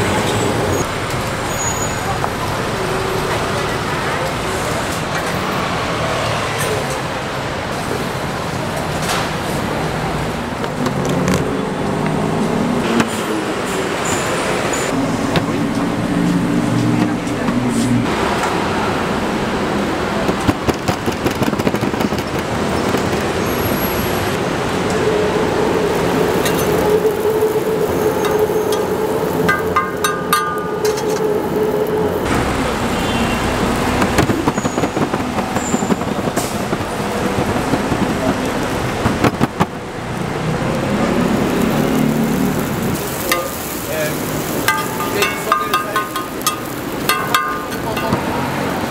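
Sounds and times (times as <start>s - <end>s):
street traffic noise: 0.0s - 48.9s
dough sizzling in oil: 40.2s - 47.8s.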